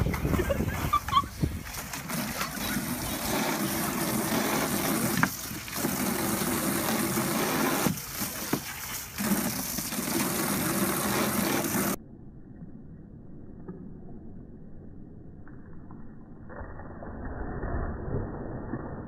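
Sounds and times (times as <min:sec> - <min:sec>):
hose spraying into water: 0:00.6 - 0:12.0
dog splashing: 0:01.6 - 0:12.0.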